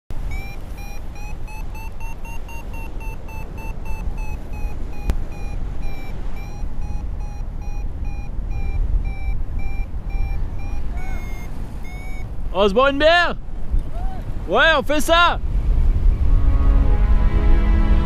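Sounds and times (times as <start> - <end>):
variometer short beeps: 0.1 - 12.5
wind rumble on microphone: 0.2 - 12.6, 13.3 - 18.0.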